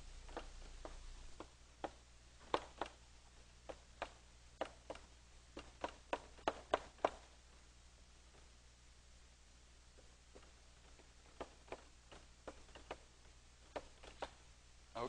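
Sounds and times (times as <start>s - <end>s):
chalk tapping on a blackboard: 0.4s - 3.0s, 3.6s - 7.3s, 13.7s - 14.4s.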